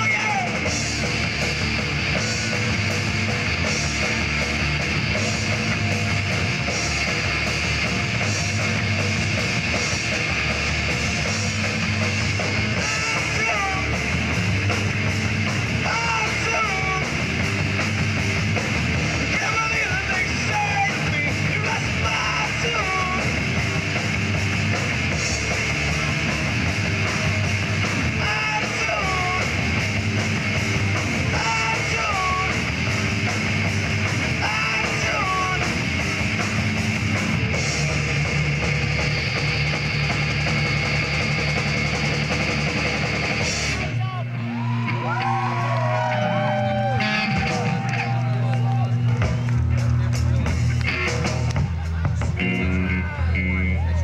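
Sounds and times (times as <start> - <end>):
punk rock band playing: 0.0 - 54.0
shouted singing: 19.3 - 23.4, 31.2 - 32.7, 34.3 - 35.8, 44.6 - 48.5.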